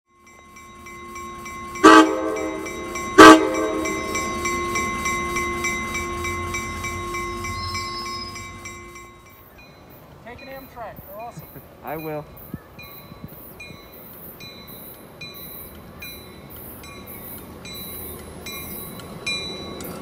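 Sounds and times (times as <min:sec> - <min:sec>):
crossing bell ringing: 0:00.1 - 0:20.0
locomotive air horn blasts: 0:01.8 - 0:04.5.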